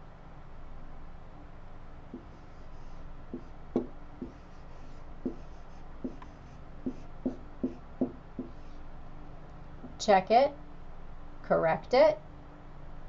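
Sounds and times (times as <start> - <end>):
marker tip tapping whiteboard: 2.1 - 2.4, 3.3 - 4.5, 5.2 - 8.6
marker scratchy strokes: 2.1 - 8.8.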